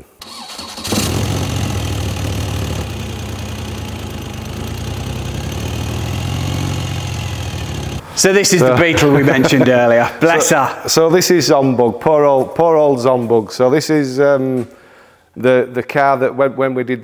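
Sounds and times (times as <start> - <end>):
radial engine idling: 0.2 - 8.0.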